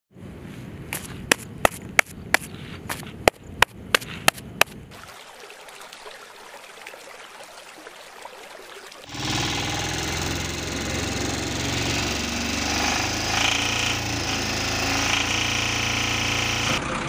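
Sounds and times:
hand slapping wet dung: 0.9s - 5.1s
water pouring over a weir: 4.9s - 11.4s.

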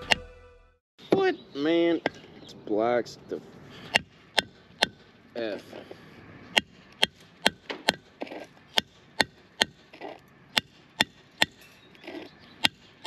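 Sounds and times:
hammer striking metal chisel: 3.9s - 5.1s, 6.5s - 13.0s.

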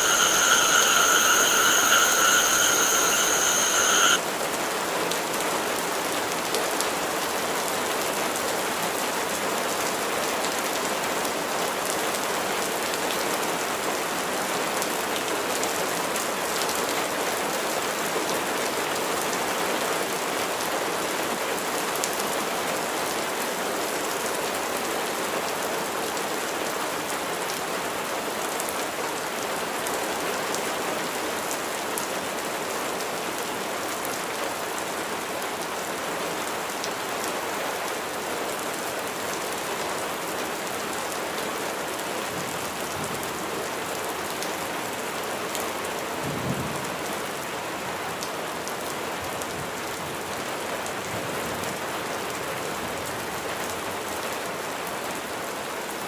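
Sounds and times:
steady rain hiss: 0.0s - 4.2s.

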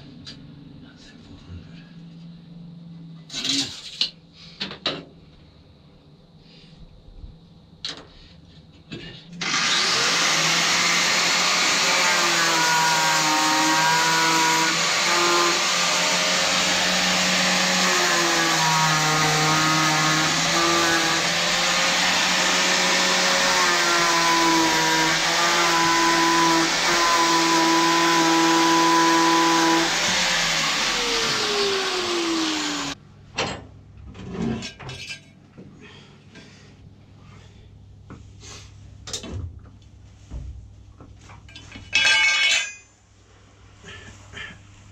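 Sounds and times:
electric power tool running: 9.4s - 33.0s.

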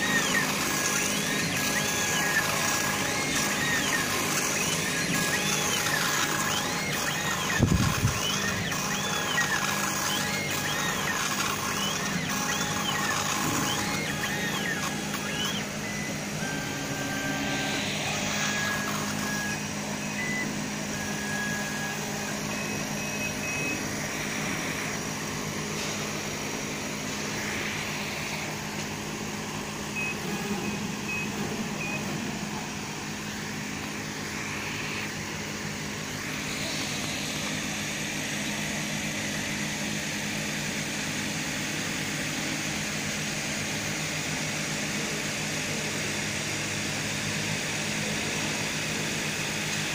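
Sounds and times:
short high-pitched whines: 0.0s - 39.3s
laser engraving machine humming: 0.0s - 49.9s.

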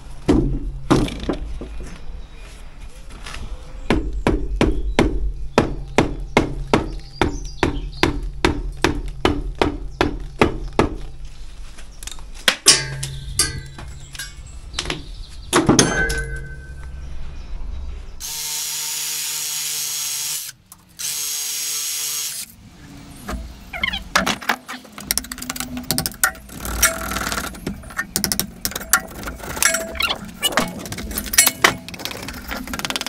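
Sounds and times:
hammer knocking on masonry and metal: 3.9s - 11.0s.

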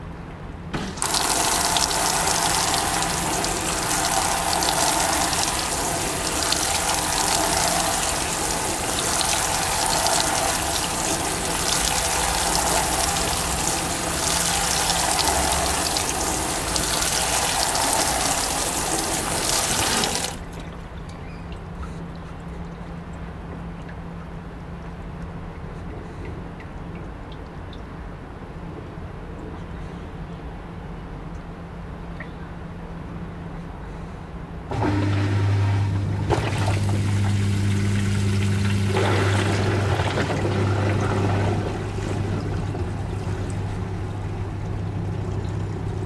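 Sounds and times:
steady low hum: 0.0s - 46.0s
water spraying into washing machine: 0.7s - 20.6s, 34.7s - 46.0s.

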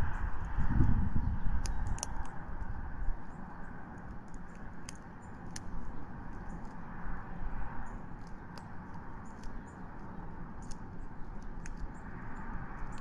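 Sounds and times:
low rumble: 0.0s - 3.3s
eagle tearing at prey: 0.6s - 2.8s.

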